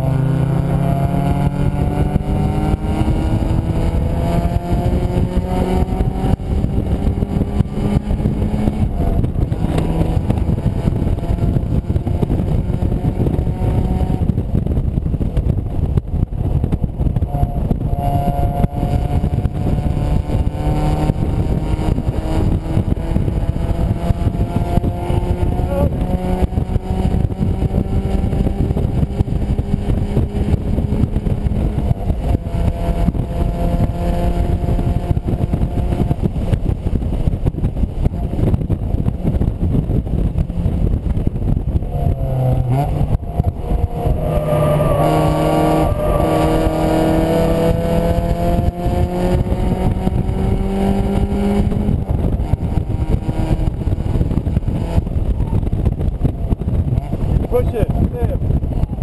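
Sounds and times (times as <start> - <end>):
car engine revving hard: 0.0 - 14.3, 17.3 - 36.2, 41.7 - 55.3
wind buffeting microphone: 0.0 - 59.0.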